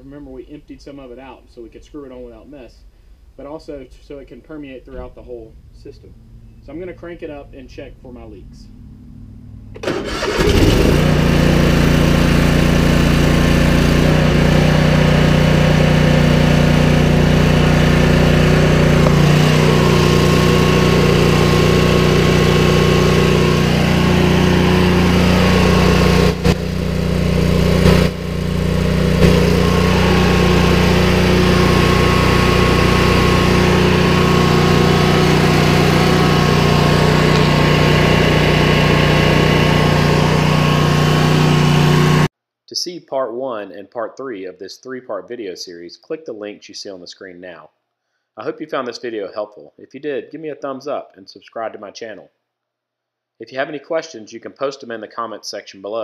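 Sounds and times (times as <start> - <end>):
mower engine running: 8.8 - 42.3.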